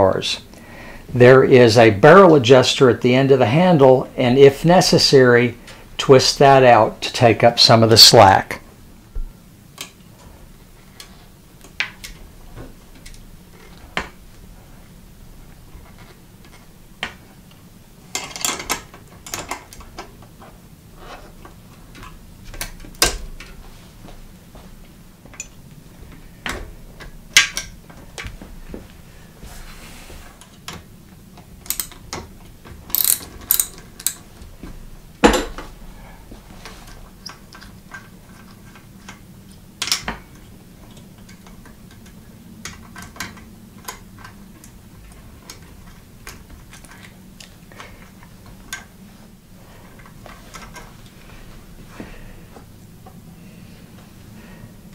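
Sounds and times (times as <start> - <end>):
wrench clicking on metal brake parts: 32.9 - 34.2.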